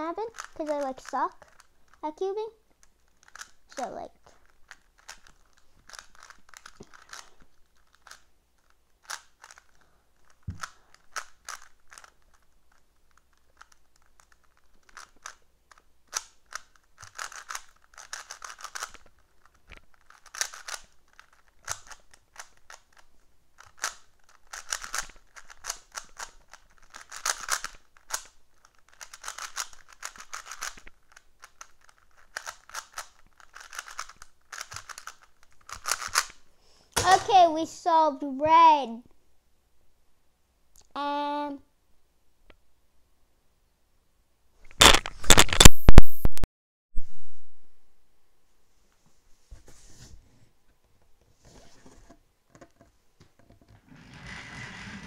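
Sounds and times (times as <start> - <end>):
puzzle cube clicking: 0.2 - 2.0, 2.8 - 36.4, 44.7 - 46.3.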